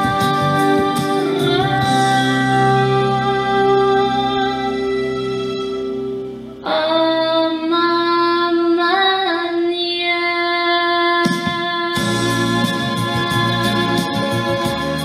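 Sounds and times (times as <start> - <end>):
sustained chords music: 0.0 - 7.8.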